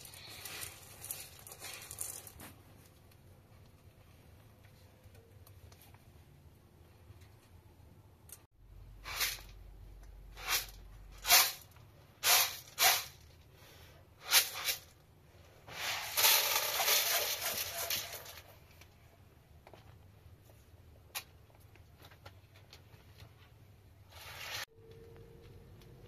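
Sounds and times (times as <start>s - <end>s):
beans pouring into a pot: 0.0s - 2.4s, 15.8s - 18.5s
beans rattling in a metal pan: 0.0s - 2.5s, 15.7s - 18.7s.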